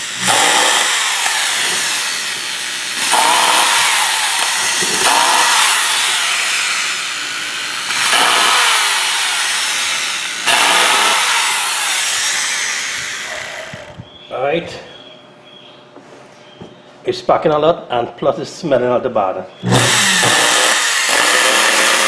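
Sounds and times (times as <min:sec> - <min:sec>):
hammer drill motor surging: 0:00.0 - 0:14.1, 0:19.6 - 0:22.0.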